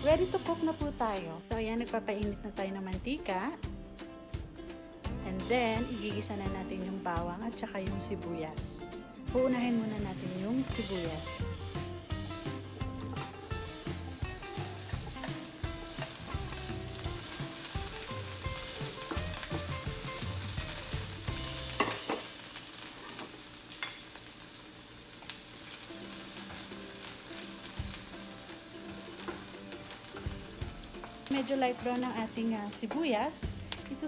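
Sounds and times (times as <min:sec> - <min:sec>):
onions sizzling in hot oil: 0:09.3 - 0:34.0.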